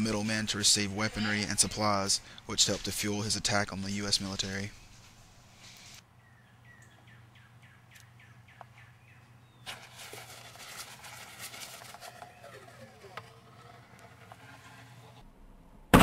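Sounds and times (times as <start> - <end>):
small bird chirping: 6.2 - 9.7.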